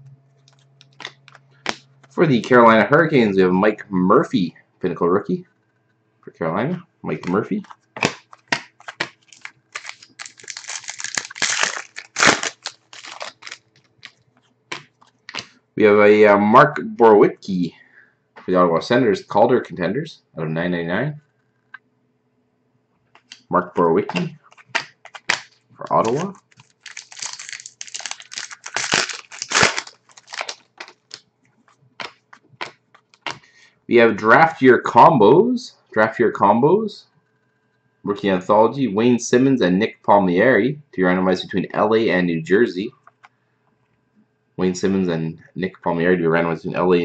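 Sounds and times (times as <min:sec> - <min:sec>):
cards being handled: 0:07.2 - 0:15.6, 0:23.2 - 0:33.4
foil wrapper tearing and crumpling: 0:08.0 - 0:14.2, 0:24.4 - 0:31.2.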